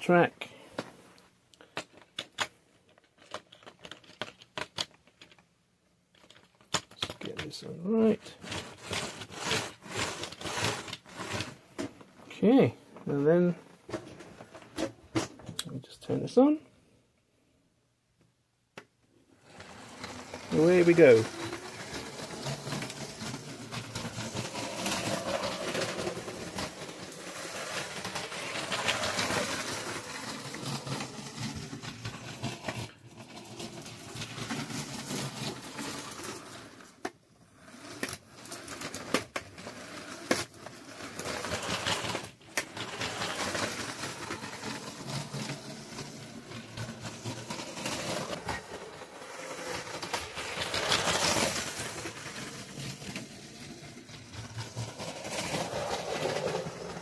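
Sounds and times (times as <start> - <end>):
toy train motor whirring: 8.2 - 11.6, 19.4 - 57.0.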